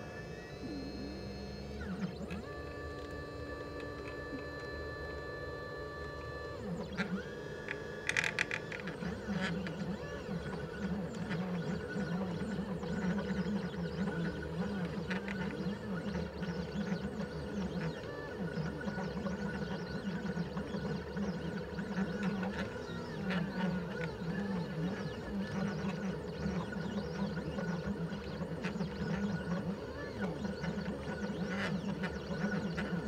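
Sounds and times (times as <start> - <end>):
stepper motors humming whine: 0.0 - 33.0.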